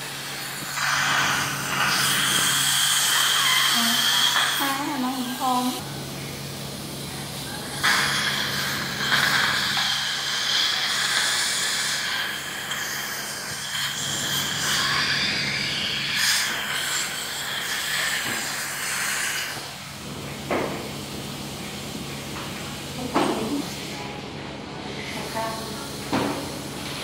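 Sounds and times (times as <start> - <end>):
saliva ejector sucking hiss: 0.2 - 5.8.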